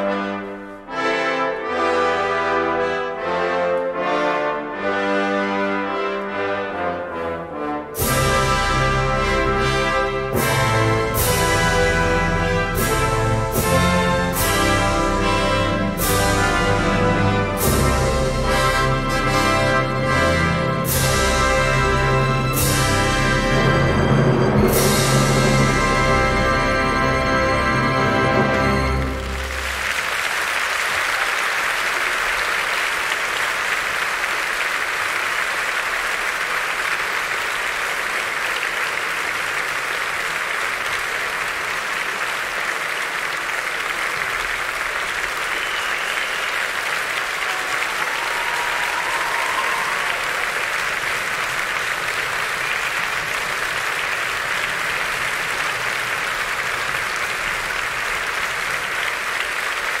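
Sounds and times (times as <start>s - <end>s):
orchestral music: 0.0s - 60.0s
audience applauding: 25.6s - 60.0s.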